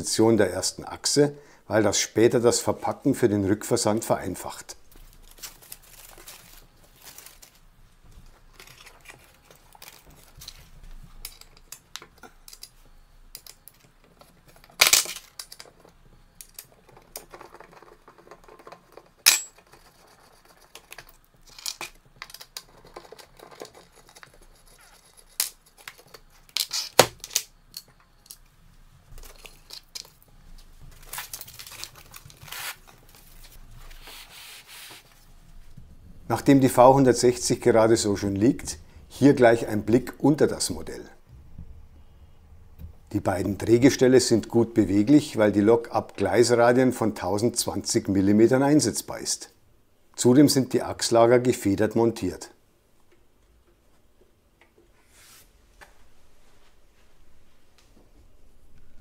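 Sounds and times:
rustling of board and foam: 0:04.9 - 0:11.2, 0:28.8 - 0:37.7
clicks and knocks of tools and screws: 0:11.2 - 0:28.5, 0:29.2 - 0:30.2.

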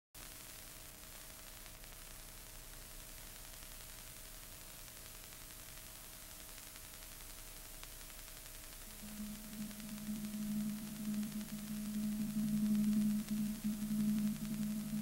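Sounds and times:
film soundtrack hiss: 0:00.2 - 0:15.0
low even hum: 0:08.7 - 0:15.0.

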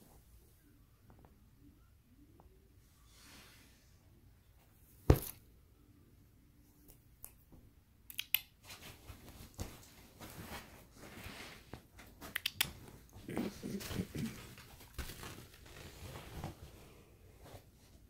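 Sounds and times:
comforter rustling and crinkling: 0:08.6 - 0:18.0.

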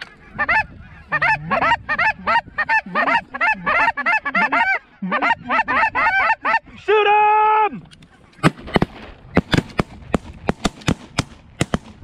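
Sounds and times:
geese honking: 0:00.0 - 0:06.7.

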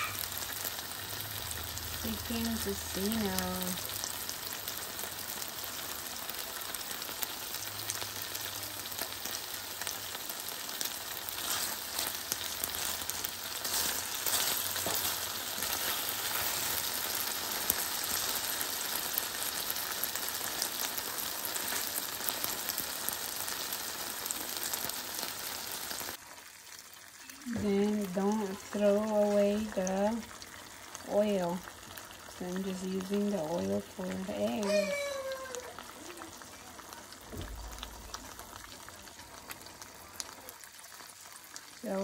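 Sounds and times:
meat sizzling in oil: 0:00.0 - 0:42.0
wooden spatula stirring: 0:11.3 - 0:18.3.

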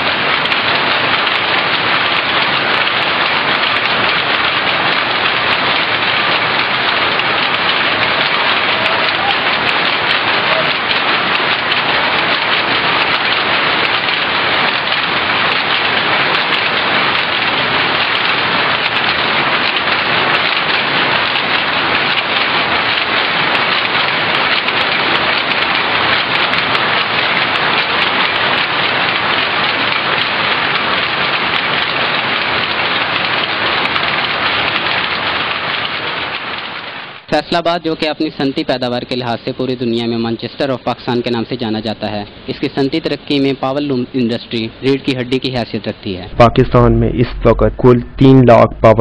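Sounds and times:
power looms clattering: 0:00.0 - 0:49.0.

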